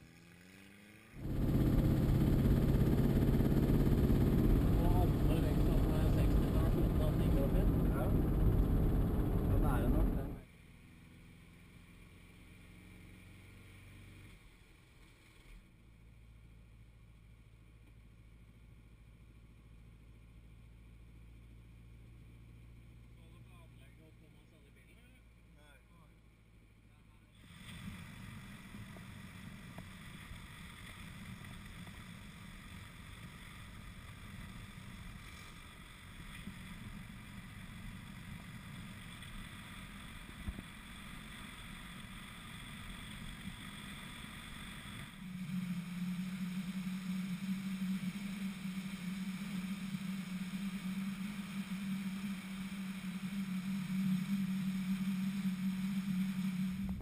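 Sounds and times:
car engine hum: 0.0s - 14.6s, 27.8s - 57.0s
steady low drone: 1.2s - 10.5s, 27.8s - 57.0s.

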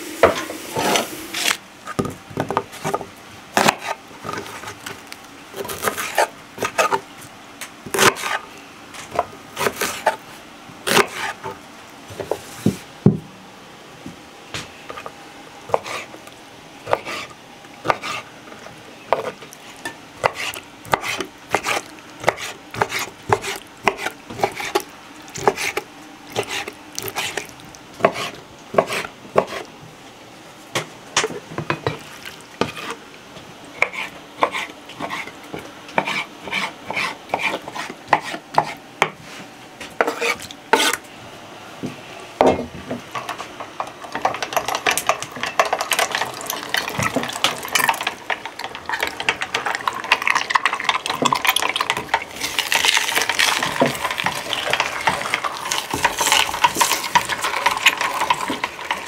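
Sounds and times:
meat grinder rattling: 43.8s - 59.0s.

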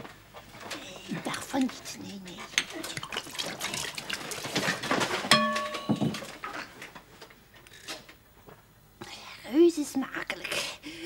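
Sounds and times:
glassware and ladle clicking: 5.3s - 6.3s
ringing glass clink: 5.3s - 6.3s.

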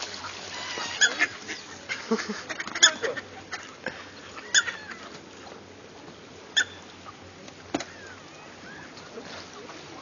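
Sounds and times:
ducks quacking: 0.0s - 5.2s.

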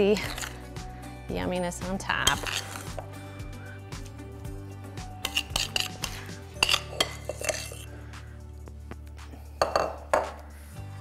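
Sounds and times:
spoon clinking against dishes: 5.2s - 7.9s, 9.6s - 10.3s.

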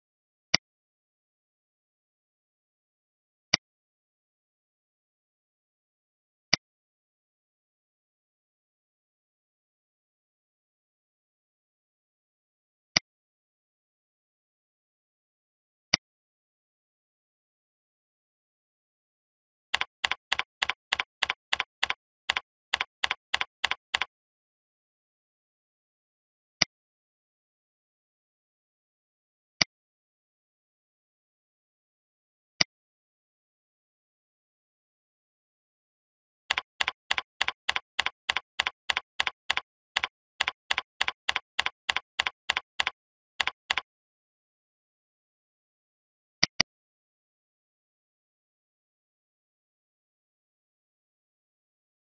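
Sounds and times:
typing on computer keyboard: 19.7s - 24.1s, 36.5s - 43.9s.

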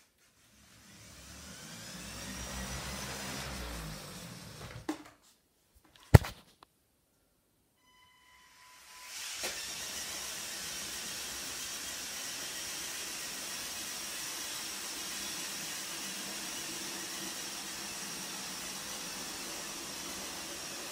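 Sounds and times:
toy motors whirring: 8.9s - 13.8s.

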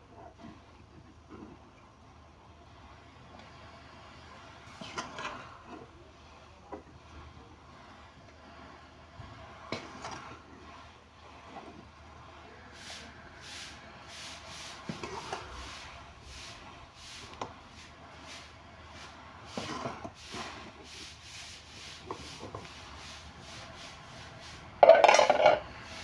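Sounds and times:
spoon scraping metal pot: 24.8s - 25.8s.

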